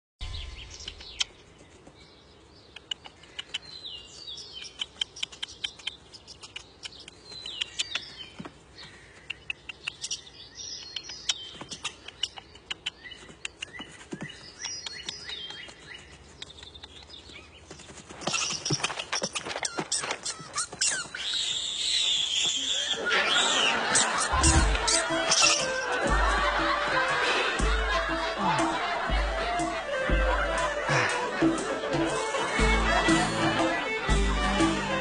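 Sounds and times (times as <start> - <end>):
birds chirping: 0.2 - 35.0
sharp clicks and snaps: 0.8 - 1.4, 2.7 - 3.8, 4.5 - 8.1, 9.3 - 10.2, 10.8 - 13.8.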